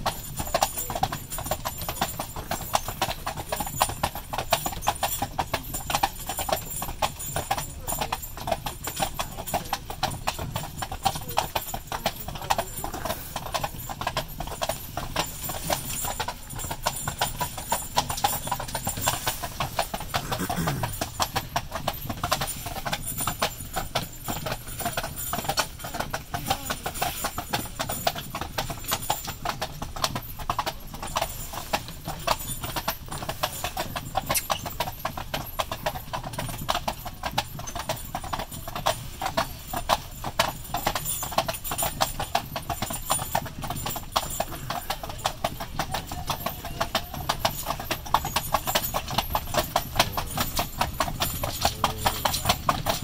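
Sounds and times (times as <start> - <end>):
horse hooves clip-clopping on pavement: 0.0 - 53.0.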